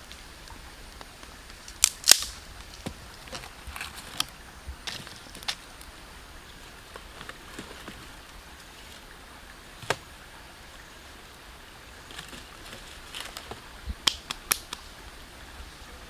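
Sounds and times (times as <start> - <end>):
steady outdoor hiss: 0.0 - 16.0
wooden sticks snapping and knocking: 1.0 - 5.9, 9.8 - 10.1, 12.1 - 14.8.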